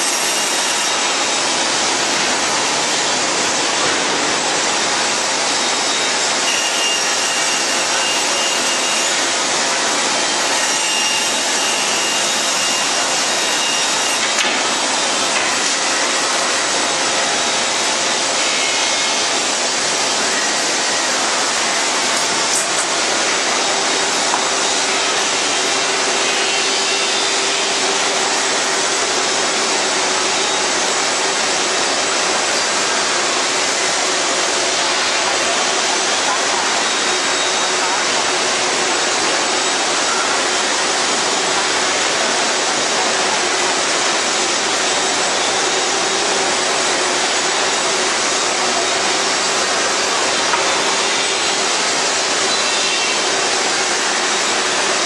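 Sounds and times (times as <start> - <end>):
band saw cutting wood: 0.0 - 55.0.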